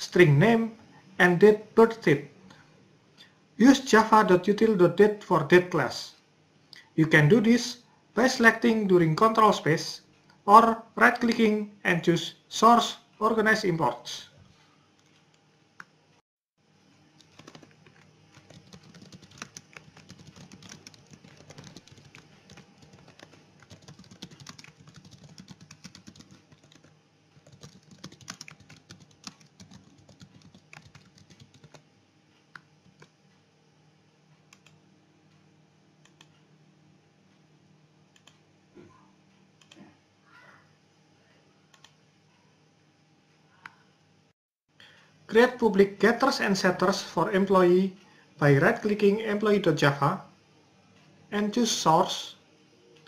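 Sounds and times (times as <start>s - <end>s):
typing on computer keyboard: 17.2s - 31.8s.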